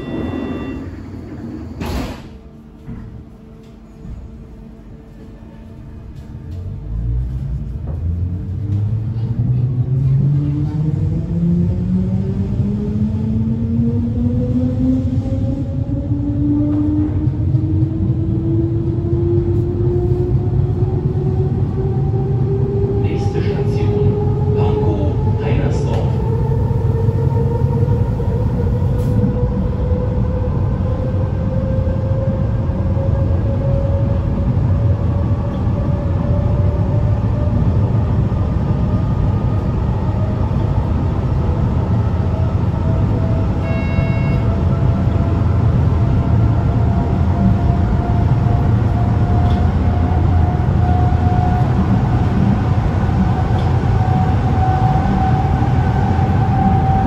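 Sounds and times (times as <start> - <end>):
short high beep: 0.0 - 1.0
train wheels rumbling on track: 0.0 - 57.0
train drive whine rising: 10.9 - 57.0.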